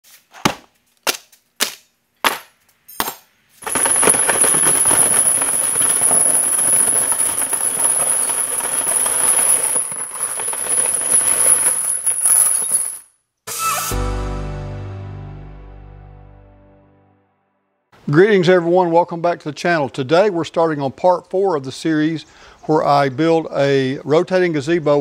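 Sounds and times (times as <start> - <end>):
steel chain links rattling: 3.6 - 13.1.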